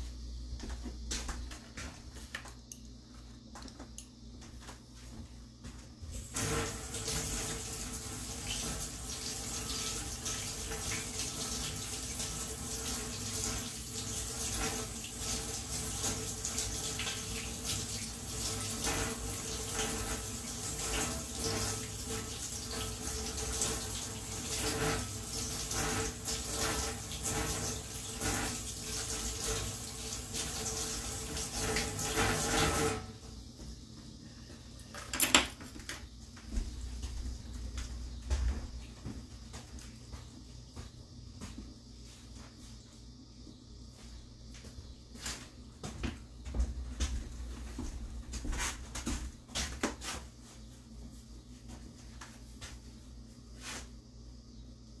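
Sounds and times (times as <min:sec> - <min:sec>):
water running from tap: 0:06.2 - 0:33.2.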